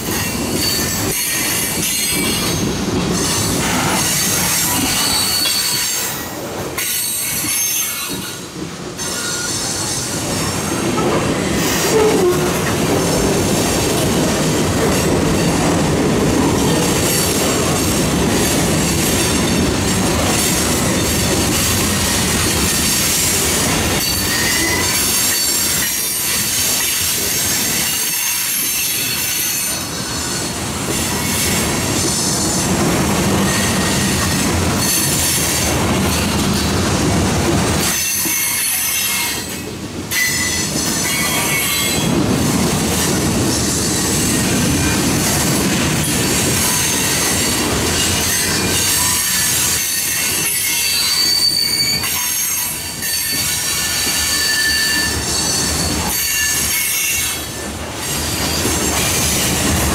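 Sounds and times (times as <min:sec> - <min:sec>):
train wheels rumbling on rails: 0:00.0 - 0:59.9
wheel squeal: 0:04.0 - 0:06.2, 0:09.0 - 0:10.0, 0:24.0 - 0:26.2, 0:48.2 - 0:57.3.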